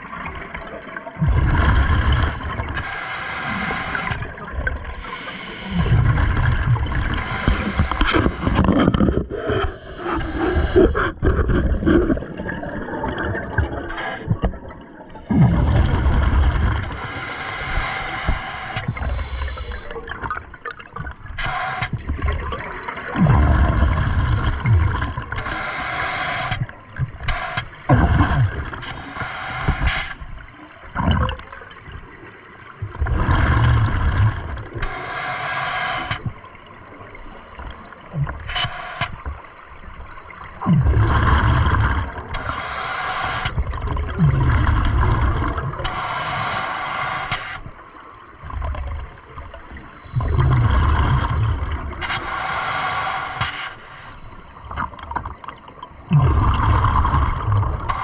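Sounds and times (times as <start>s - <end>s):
rush of bubbles: 0.0s - 29.0s, 29.6s - 34.9s, 36.0s - 46.5s, 47.2s - 53.4s, 54.2s - 58.0s
regulator hiss on inhale: 2.3s - 4.2s, 4.9s - 6.1s, 7.1s - 8.6s, 9.5s - 11.1s, 16.8s - 20.0s, 21.4s - 22.1s, 25.3s - 27.9s, 28.8s - 30.4s, 34.8s - 36.4s, 37.3s - 39.3s, 42.4s - 43.6s, 45.8s - 47.8s, 52.0s - 54.8s.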